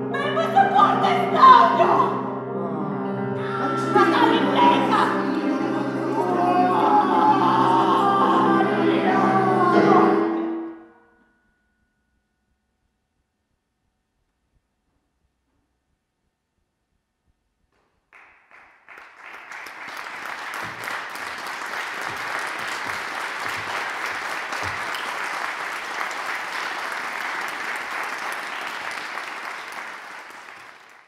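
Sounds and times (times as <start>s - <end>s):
audience applauding: 18.1s - 31.0s.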